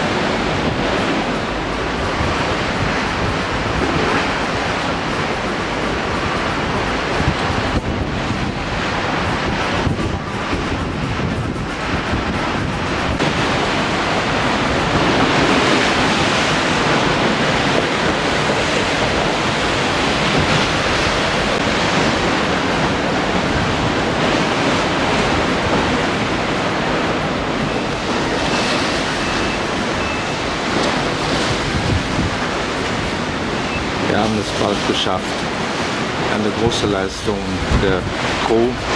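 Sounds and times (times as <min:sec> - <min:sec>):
rough sea rushing: 0:00.0 - 0:38.9
strong wind on microphone: 0:00.0 - 0:38.9
waves breaking against wall: 0:00.0 - 0:38.9.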